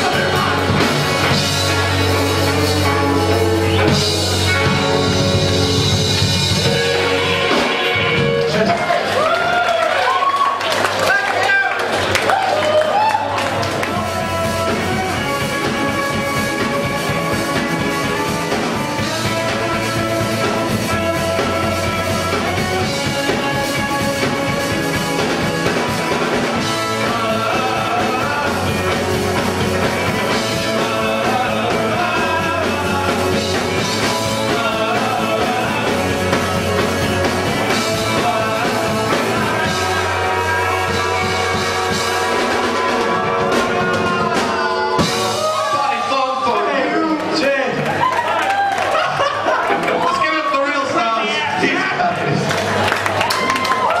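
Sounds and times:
bass line: 0:00.0 - 0:09.6, 0:12.3 - 0:46.5
live band playing: 0:00.0 - 0:54.0.

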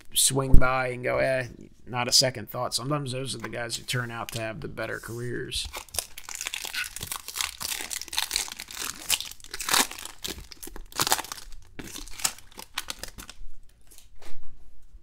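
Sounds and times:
foil wrapper crinkling: 0:05.6 - 0:14.0.

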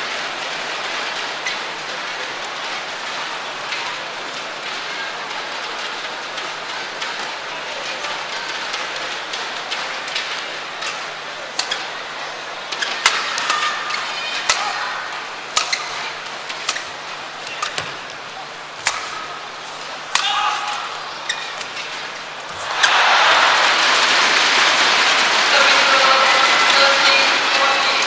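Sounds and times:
crowd murmur: 0:00.0 - 0:28.0
racket hitting shuttlecock: 0:10.8 - 0:11.9, 0:12.8 - 0:13.8, 0:14.4 - 0:14.9, 0:15.5 - 0:18.2, 0:18.8 - 0:25.3.

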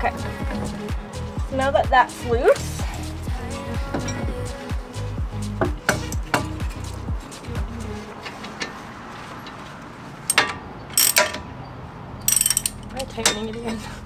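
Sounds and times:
ratchet wrench clicking: 0:10.3 - 0:11.5, 0:12.2 - 0:13.5
sharp metal clinks: 0:10.3 - 0:11.5, 0:12.2 - 0:13.6.

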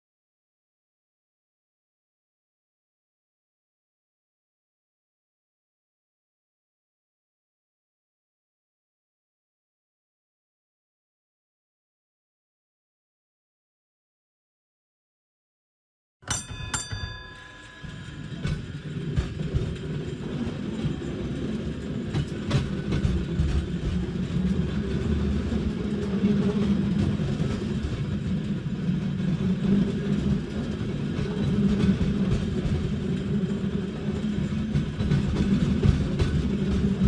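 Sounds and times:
tram bell dinging: 0:16.2 - 0:23.5
tram rolling on rails: 0:16.3 - 0:37.0.

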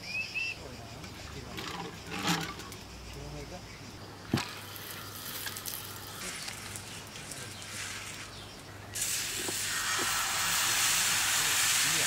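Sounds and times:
batter sizzling on hot griddle: 0:04.6 - 0:12.0.

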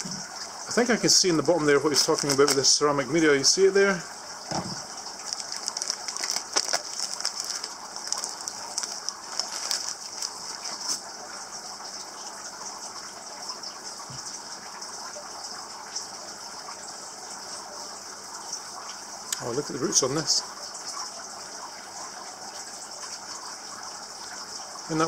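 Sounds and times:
steady high hiss: 0:00.0 - 0:11.7
plastic bags crinkling: 0:01.4 - 0:02.8, 0:05.2 - 0:11.1.

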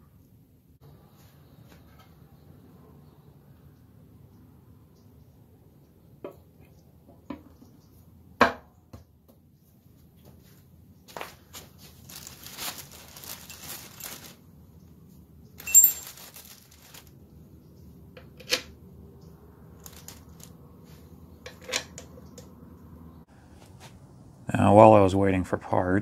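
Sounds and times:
rustling of metal parts: 0:11.2 - 0:14.4, 0:15.6 - 0:17.1, 0:19.8 - 0:20.5
sharp metallic clink: 0:15.6 - 0:16.1.

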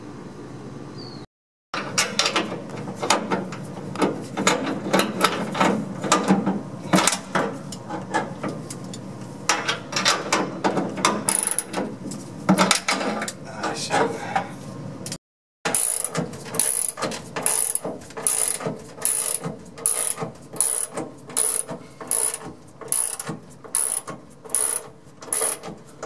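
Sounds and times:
socket wrench ratchet clicking: 0:15.7 - 0:25.6.

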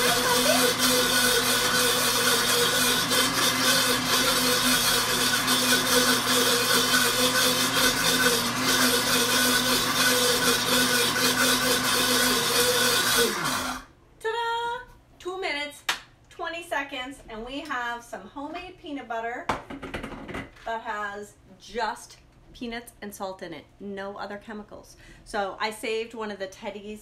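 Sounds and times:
blender motor grinding peanuts: 0:00.0 - 0:13.9.

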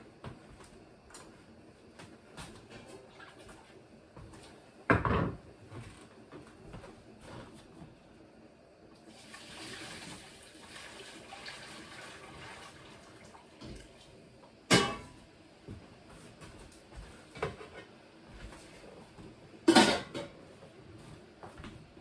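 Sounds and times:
water pouring and splashing: 0:09.0 - 0:14.3.

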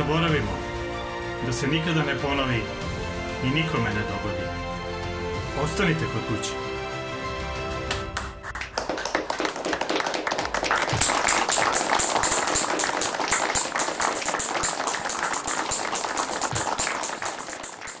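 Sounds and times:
crowd applause: 0:07.9 - 0:18.0.

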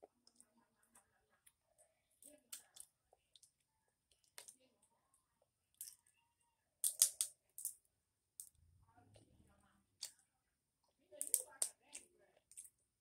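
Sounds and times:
crab shells cracking: 0:06.8 - 0:07.8, 0:11.2 - 0:12.8.

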